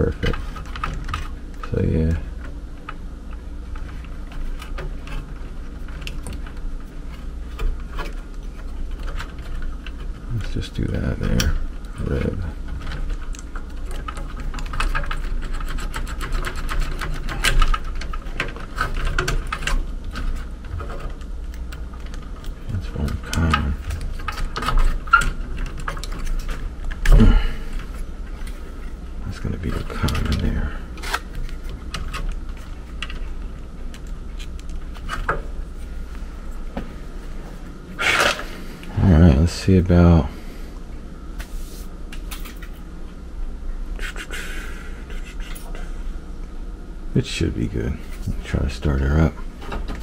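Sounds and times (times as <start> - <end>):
steady low hum: 0.0 - 50.0
wires and connectors clicking: 2.4 - 35.5.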